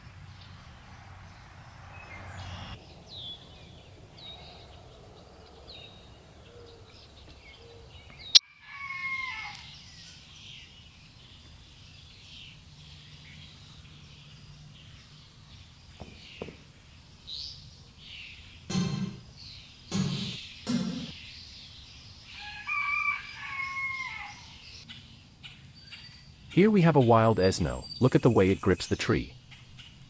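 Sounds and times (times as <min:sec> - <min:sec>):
songbird down-slurred chirp: 0:00.0 - 0:08.4, 0:09.3 - 0:30.0
rooster crowing: 0:08.4 - 0:09.8, 0:22.4 - 0:24.6.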